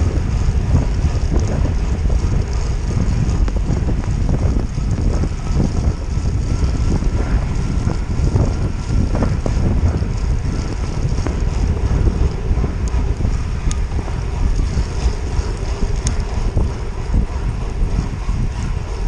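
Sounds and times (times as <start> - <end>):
wind rumbling on microphone: 0.0 - 19.0
faint ticks: 13.6 - 13.8, 14.5 - 16.2.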